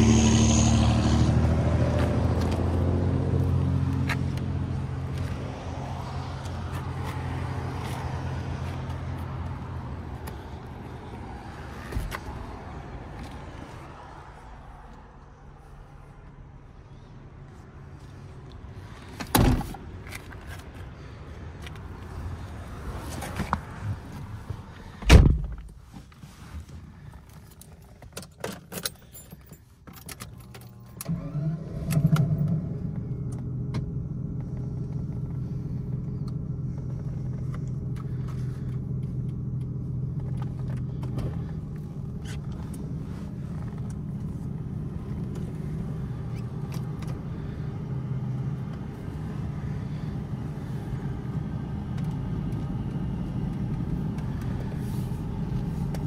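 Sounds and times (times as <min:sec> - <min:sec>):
car engine starting and idling: 0:00.0 - 0:56.0
car door thudding shut: 0:25.0 - 0:25.7
keys jangling in ignition: 0:27.4 - 0:31.1.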